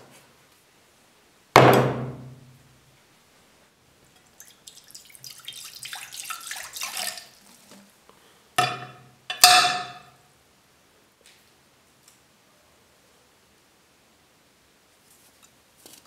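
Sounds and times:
liquid pouring and splashing: 0:04.2 - 0:08.0
metal knocking on glass: 0:08.6 - 0:10.1.

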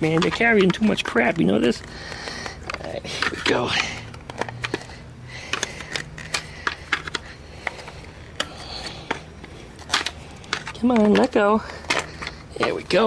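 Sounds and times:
plastic part clicking and knocking: 0:00.0 - 0:01.4.

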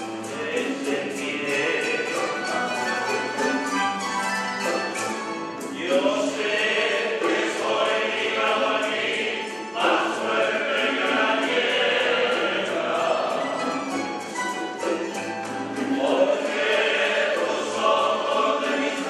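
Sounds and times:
men singing together: 0:00.0 - 0:03.2, 0:05.6 - 0:14.1, 0:15.8 - 0:19.0
plucked string ensemble: 0:00.0 - 0:19.0.

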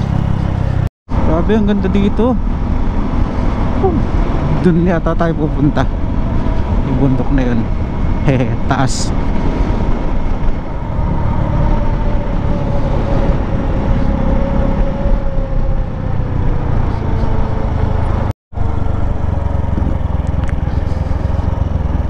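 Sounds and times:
motorcycle engine running: 0:00.0 - 0:04.4, 0:16.5 - 0:22.0
wind rumble on microphone: 0:00.0 - 0:22.0.

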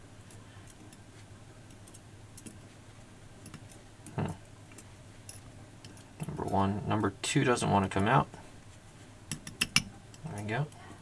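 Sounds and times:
tweezers clicking on metal tray: 0:09.3 - 0:10.5.

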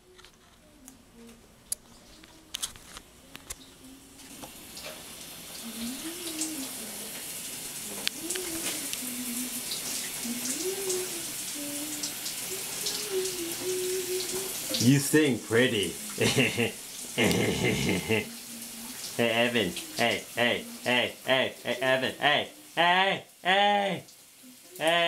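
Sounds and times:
shower water hissing: 0:03.6 - 0:25.0
person singing: 0:05.6 - 0:07.2, 0:07.9 - 0:25.0.

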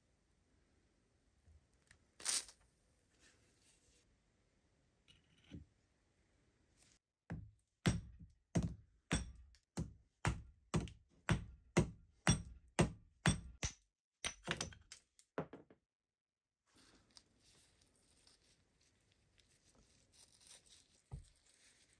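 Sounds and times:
hammer striking steel punch: 0:07.8 - 0:14.6.

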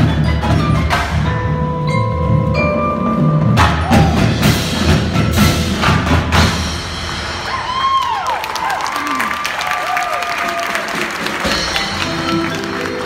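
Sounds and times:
marimba and vibraphone ringing: 0:00.0 - 0:04.9, 0:11.4 - 0:13.0
drum and cymbal hits: 0:00.0 - 0:08.0, 0:10.8 - 0:13.0.

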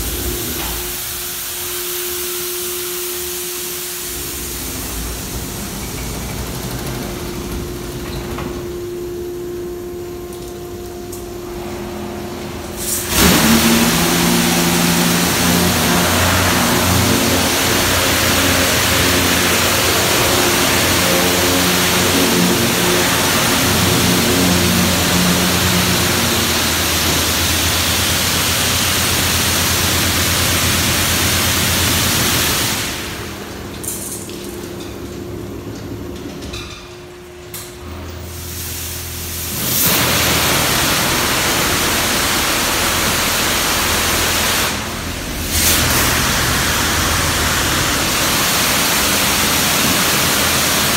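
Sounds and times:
high-pressure water spray hissing: 0:00.0 - 0:06.0, 0:12.7 - 0:33.4, 0:38.4 - 0:50.9
low machine hum: 0:00.0 - 0:50.9.

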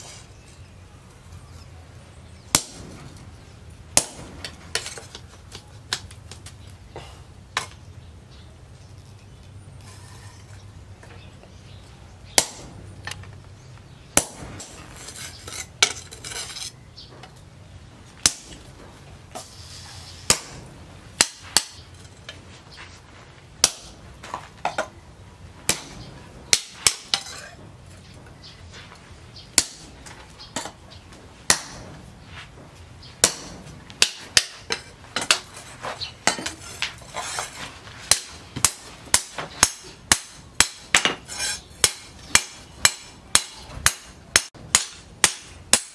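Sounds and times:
hammer striking metal on anvil: 0:02.5 - 0:03.2, 0:04.0 - 0:05.0, 0:12.4 - 0:13.2, 0:14.2 - 0:15.0, 0:18.2 - 0:19.0, 0:20.3 - 0:21.9, 0:25.7 - 0:27.6, 0:29.5 - 0:30.8, 0:31.5 - 0:32.0, 0:33.2 - 0:35.5, 0:38.1 - 0:45.9.

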